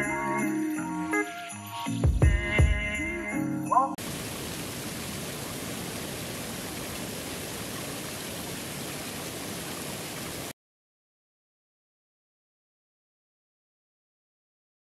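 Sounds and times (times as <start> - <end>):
water running over stones: 4.0 - 10.5
waterfall splashing onto rocks: 4.0 - 10.6.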